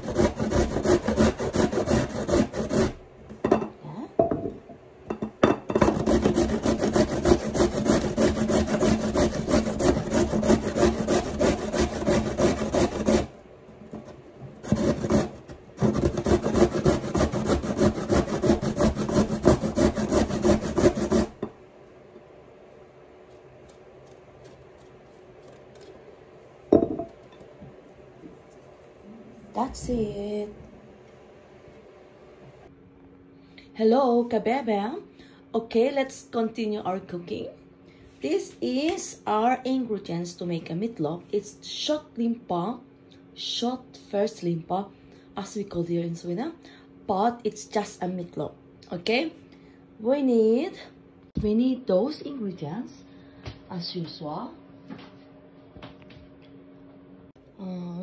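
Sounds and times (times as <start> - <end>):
carrot grated on metal grater: 0.0 - 3.0, 5.8 - 13.3, 13.9 - 21.4.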